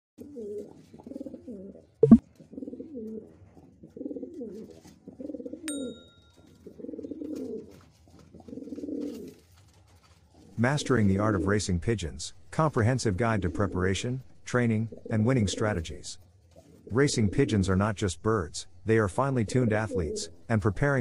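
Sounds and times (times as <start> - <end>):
pigeons cooing: 0.2 - 5.7, 6.6 - 9.4, 10.4 - 12.2, 12.8 - 17.9, 19.5 - 20.5.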